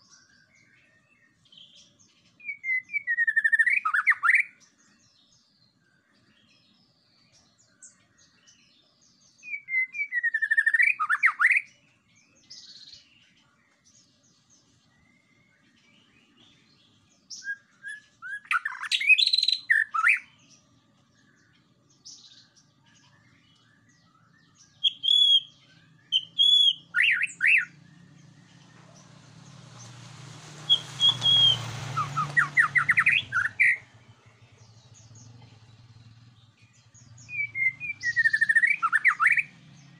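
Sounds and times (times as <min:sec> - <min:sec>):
bird singing whistled notes: 0:00.0 - 0:39.9.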